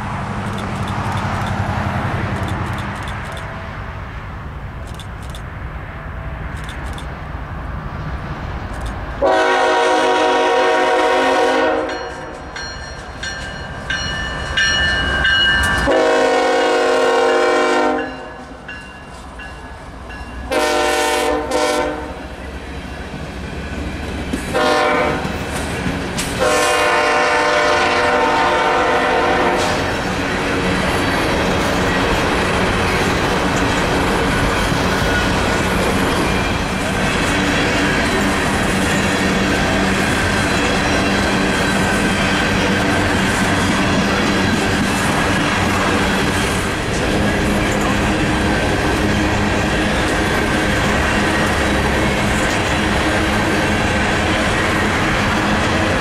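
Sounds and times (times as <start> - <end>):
locomotive air horn blasts: 9.2 - 12.3, 15.8 - 18.5, 20.5 - 22.3, 24.5 - 25.4, 26.4 - 29.9
train wheels clattering on rails: 11.8 - 17.2, 22.9 - 56.0.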